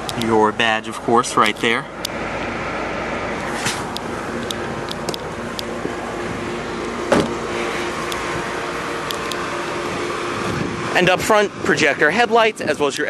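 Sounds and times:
car engine idling: 0:00.0 - 0:13.0
sharp thump: 0:03.6 - 0:03.9, 0:07.1 - 0:07.4.

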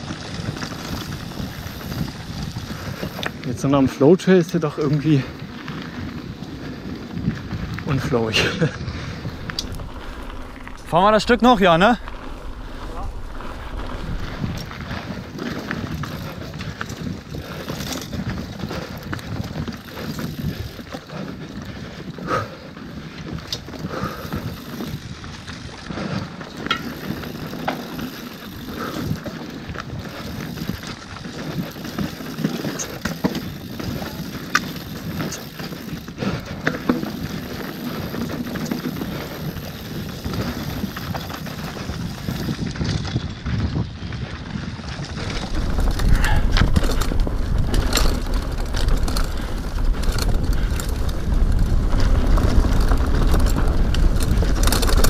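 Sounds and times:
bike rattling and knocking: 0:00.0 - 0:55.0
bike tyres rolling on dirt: 0:00.0 - 0:55.0
heavy low rumble: 0:07.6 - 0:16.4, 0:45.0 - 0:55.0.

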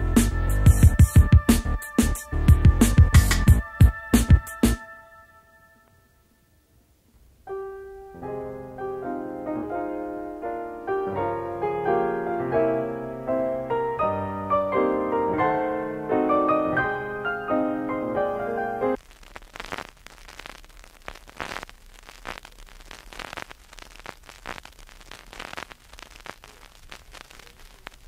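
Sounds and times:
piano melody over chords: 0:00.0 - 0:05.9, 0:07.5 - 0:19.0.

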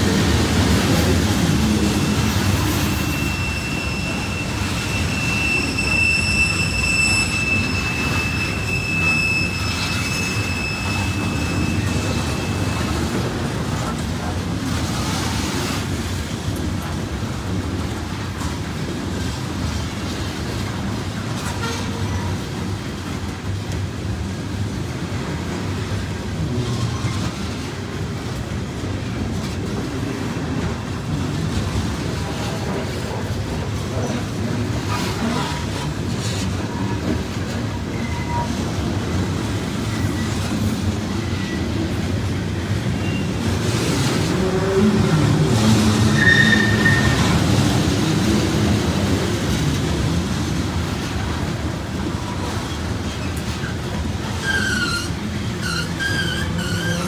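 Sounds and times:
train wheels rumbling on rail: 0:00.0 - 0:57.0
high-pitched wheel squeal: 0:01.8 - 0:13.3, 0:37.9 - 0:38.7, 0:45.7 - 0:47.6, 0:54.3 - 0:57.0.

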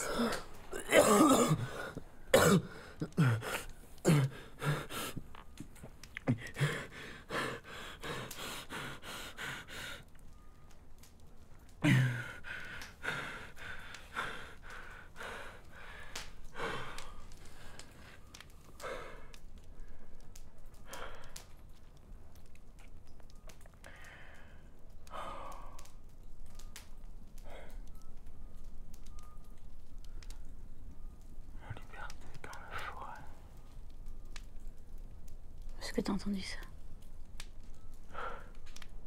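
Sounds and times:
gasping breaths: 0:00.0 - 0:05.5, 0:06.2 - 0:10.2, 0:11.8 - 0:21.6
person coughing: 0:00.2 - 0:01.8, 0:02.4 - 0:03.5.

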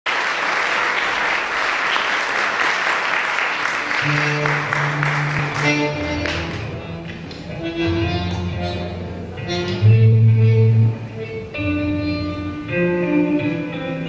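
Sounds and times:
audience applauding: 0:00.0 - 0:06.7
sustained low music notes: 0:04.0 - 0:14.0.

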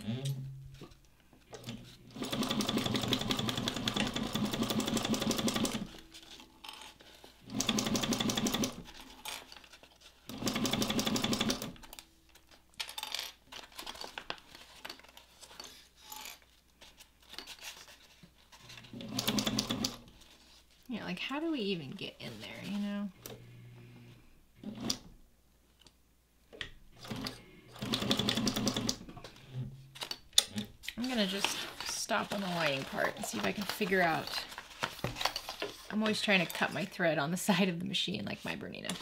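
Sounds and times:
sewing machine stitching: 0:01.5 - 0:06.0, 0:07.4 - 0:08.9, 0:10.3 - 0:11.8, 0:18.8 - 0:20.1, 0:24.6 - 0:25.1, 0:27.0 - 0:29.1.

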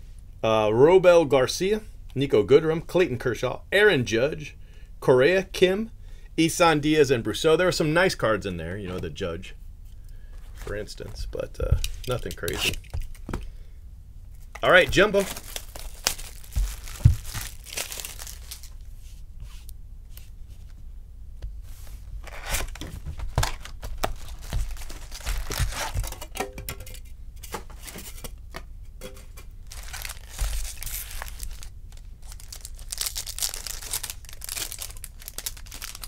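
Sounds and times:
wrappers crinkling and tearing: 0:14.5 - 0:18.8, 0:22.2 - 0:26.2, 0:29.6 - 0:36.0.

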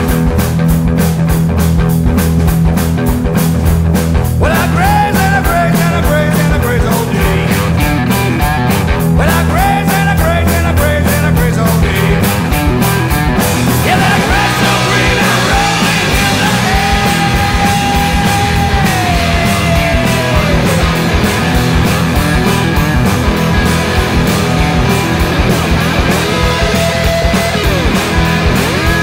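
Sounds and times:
blues-rock band playing: 0:00.0 - 0:29.0
electric guitar lead bending: 0:00.0 - 0:29.0
cymbals washing: 0:12.3 - 0:29.0.

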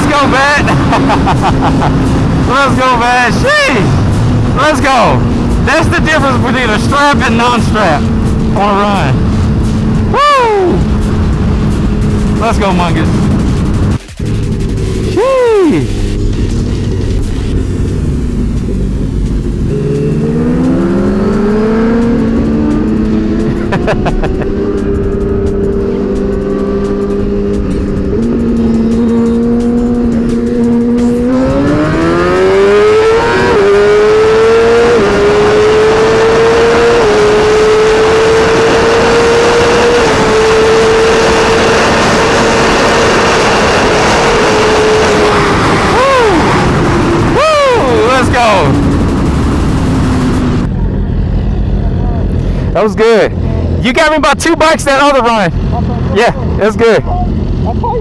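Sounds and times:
motorcycle engine accelerating: 0:00.0 - 0:58.0
wind rush: 0:30.3 - 0:52.8.

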